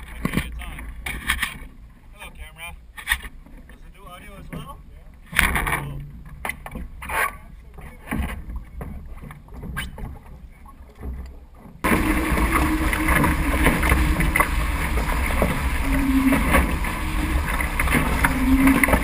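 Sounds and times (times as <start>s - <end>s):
water rushing past hull: 3.9s - 19.0s
wind rumbling on microphone: 11.8s - 19.0s.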